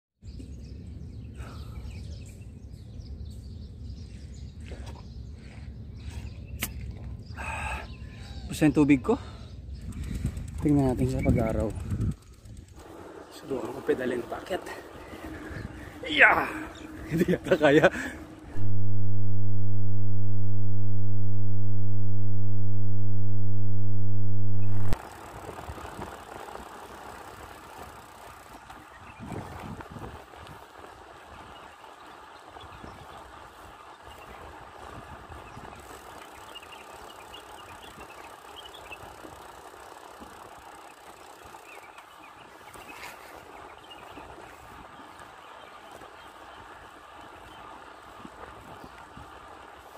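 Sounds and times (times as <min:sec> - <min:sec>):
low electronic buzz tone: 0:18.5 - 0:25.0
bicycle rushing noise: 0:24.6 - 0:42.3.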